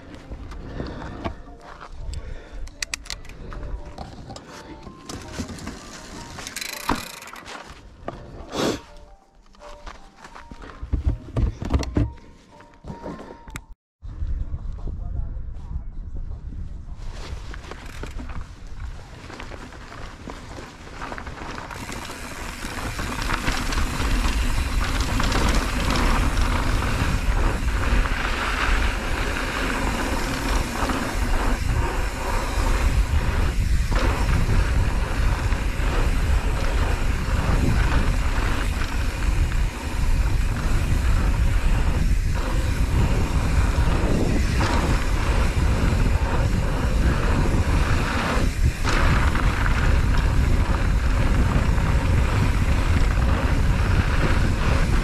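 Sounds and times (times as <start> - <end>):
bike tyres rolling over gravel: 0.0 - 2.5, 4.9 - 8.4, 17.0 - 55.0
wind buffeting microphone: 21.4 - 55.0.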